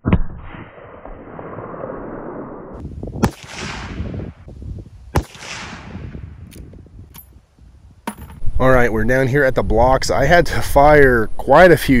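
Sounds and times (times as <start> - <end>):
rifle shots echoing: 3.2 - 4.3, 5.1 - 6.3.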